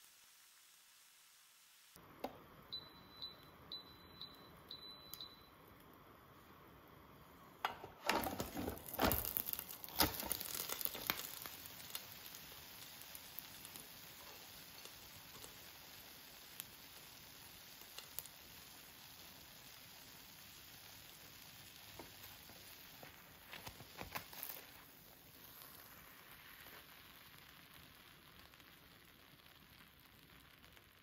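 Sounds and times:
waffle maker beeping: 0:02.2 - 0:05.8, 0:07.6 - 0:12.0.

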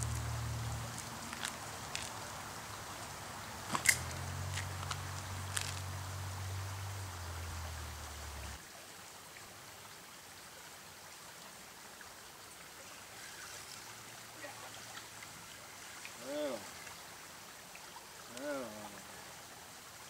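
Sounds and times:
river rushing over riffles: 0:00.0 - 0:20.0.

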